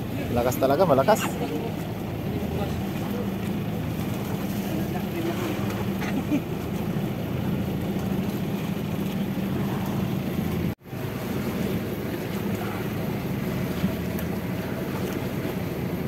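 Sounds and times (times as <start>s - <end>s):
boat engine droning: 0.0s - 16.0s
sea noise: 0.0s - 16.0s
wind: 0.0s - 16.0s.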